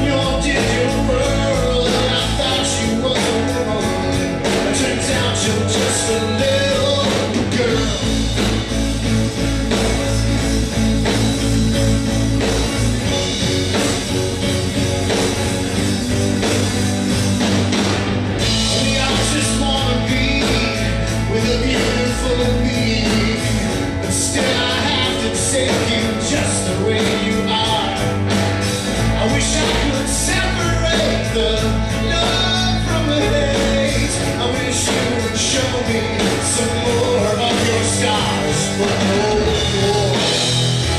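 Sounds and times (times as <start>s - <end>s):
man singing: 0.0s - 8.4s, 18.4s - 28.4s, 29.0s - 40.9s
drums: 0.0s - 40.9s
electric guitars: 0.0s - 40.9s.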